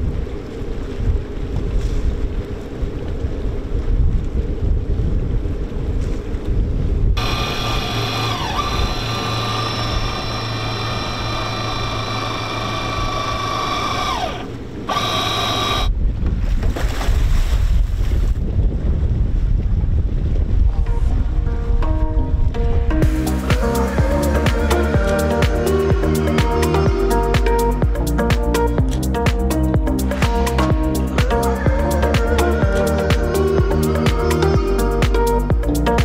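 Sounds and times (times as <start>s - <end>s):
wind buffeting microphone: 0.0s - 15.0s, 15.6s - 23.2s
electric winch whining: 7.2s - 15.9s, 23.0s - 28.2s.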